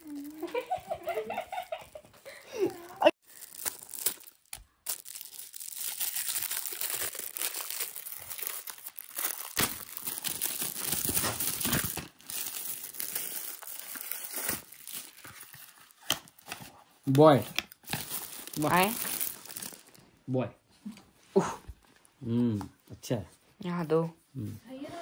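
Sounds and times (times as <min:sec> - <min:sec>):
gift wrap crinkling and tearing: 0:00.0 - 0:01.2, 0:02.3 - 0:20.0.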